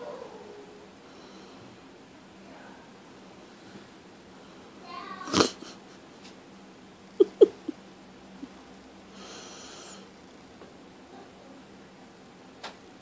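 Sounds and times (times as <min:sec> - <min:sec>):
kitten huffing: 0:05.3 - 0:05.8.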